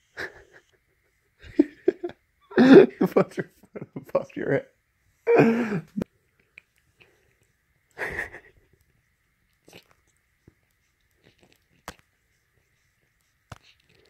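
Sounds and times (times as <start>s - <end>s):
close-up rustling and handling: 6.0s - 14.0s.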